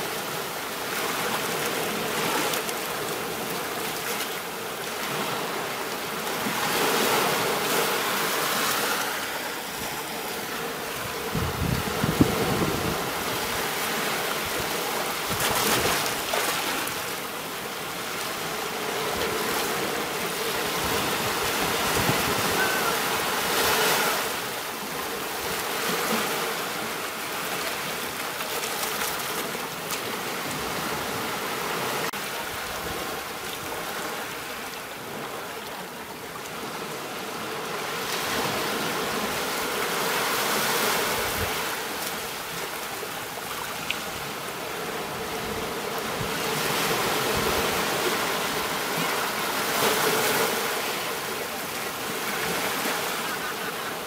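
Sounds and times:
small waves washing on sand: 0.0 - 54.0.

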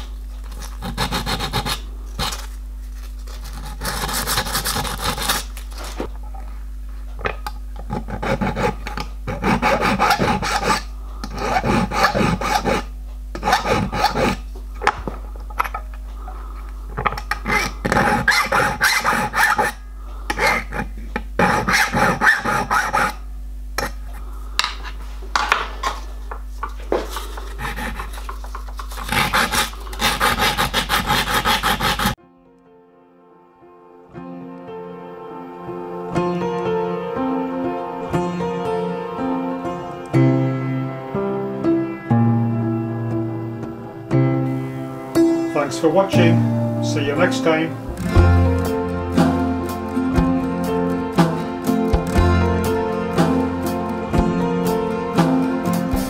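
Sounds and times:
file scraping steel: 0.5 - 2.5, 3.3 - 5.5, 7.9 - 14.5, 17.1 - 23.2, 27.1 - 32.2.

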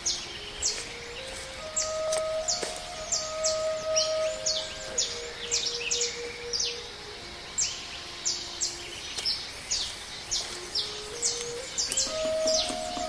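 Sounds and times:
soft flute low notes: 0.0 - 13.0
rapid high chirping calls: 9.7 - 13.0.

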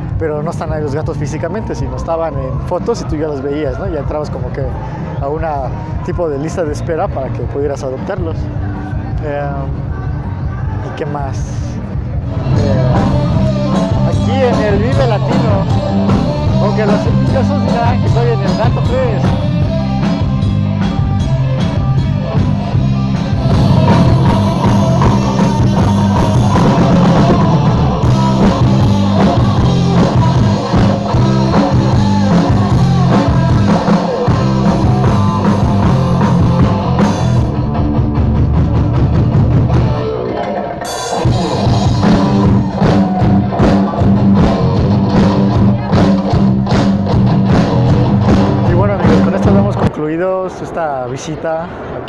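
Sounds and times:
electric guitars: 7.4 - 50.1
drum kit: 11.3 - 50.0
person singing: 12.2 - 37.2.

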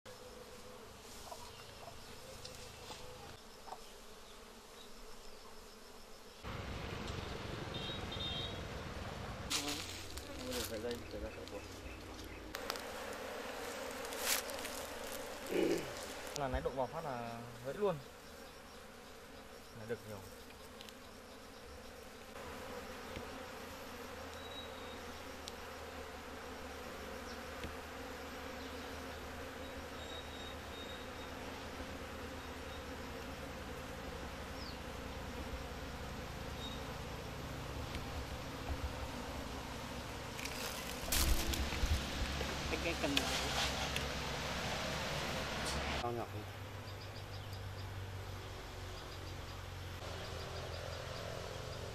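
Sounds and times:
honeybees buzzing: 0.1 - 51.9.

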